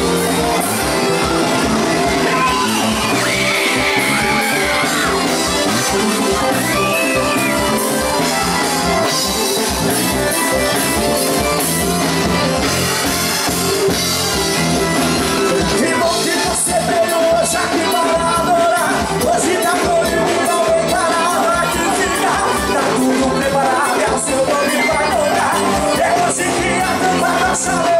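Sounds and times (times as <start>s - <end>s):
steady drum beat: 0.0s - 21.1s
live gospel band music: 0.0s - 27.9s
singing: 15.6s - 27.9s.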